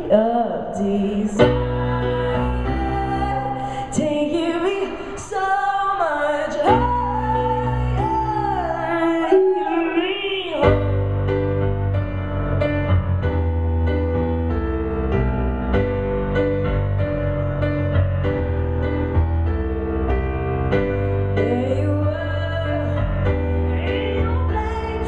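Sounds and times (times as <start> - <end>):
piano chords: 0.0 - 25.0
boy singing: 23.6 - 25.0.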